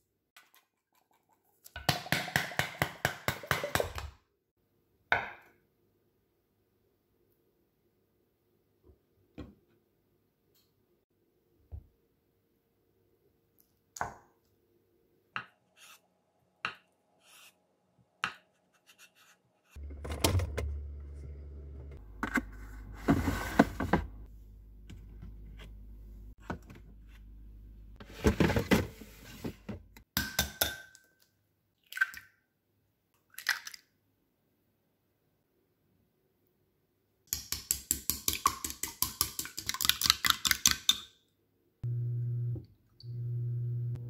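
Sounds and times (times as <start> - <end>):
plastic drawer sliding and clattering: 22.6 - 24.2, 28.0 - 29.8.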